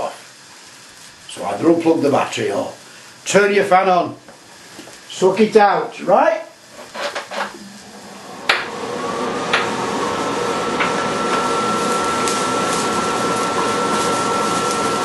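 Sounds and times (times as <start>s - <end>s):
extractor fan whirring: 7.1s - 15.0s.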